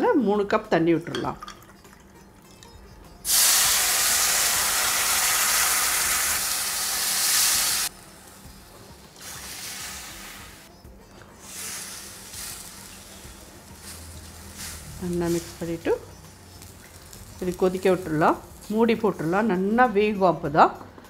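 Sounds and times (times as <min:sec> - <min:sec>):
water hissing on hot pan: 0:03.2 - 0:08.5, 0:09.1 - 0:10.7, 0:11.4 - 0:15.9
sizzling while stirred with spatula: 0:03.3 - 0:10.7, 0:11.4 - 0:19.5.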